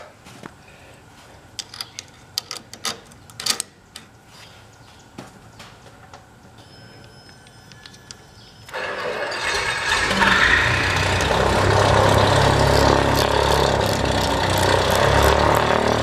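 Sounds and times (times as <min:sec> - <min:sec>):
loud steady engine noise: 0:08.7 - 0:16.0.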